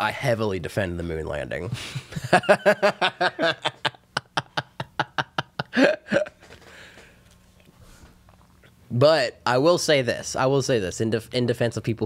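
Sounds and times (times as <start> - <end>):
person laughing: 1.8 - 6.5
person breathing: 5.8 - 8.2.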